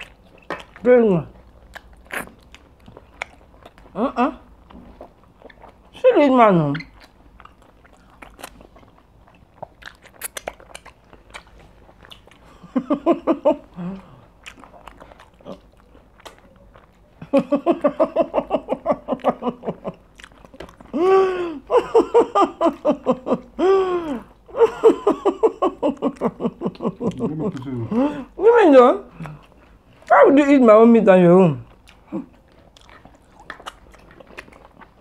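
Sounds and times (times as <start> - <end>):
chewing and lip smacks: 0.0 - 12.8, 13.6 - 17.4, 19.0 - 21.0, 26.0 - 28.0, 29.1 - 30.1, 31.6 - 35.0.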